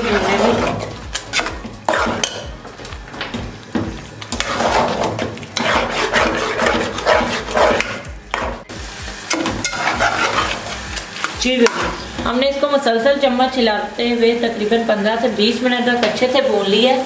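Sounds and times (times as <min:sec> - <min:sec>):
metal spatula scraping pot: 0:00.0 - 0:02.6, 0:04.3 - 0:08.6, 0:09.3 - 0:10.8.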